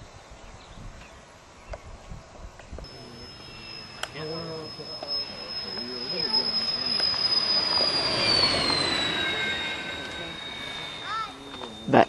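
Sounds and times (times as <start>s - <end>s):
rush of air: 2.8s - 11.8s
high airflow whistle: 2.8s - 12.0s.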